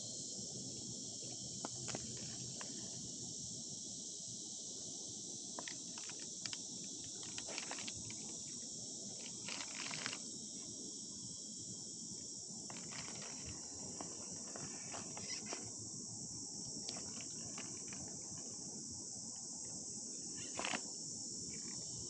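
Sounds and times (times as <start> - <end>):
crickets chirping: 0.0 - 22.0
short crackles and clicks: 5.6 - 8.3, 9.2 - 10.2, 20.4 - 20.9.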